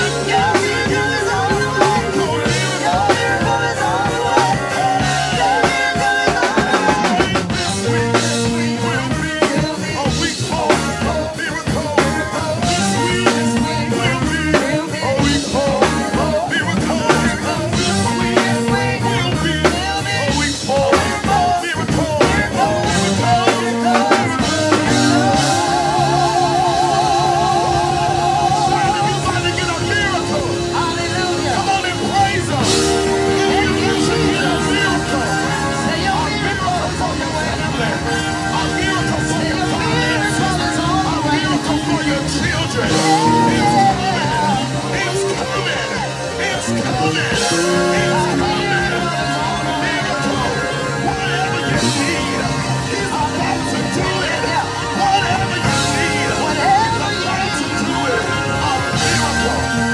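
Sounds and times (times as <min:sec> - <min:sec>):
live gospel band playing: 0:00.0 - 0:59.9.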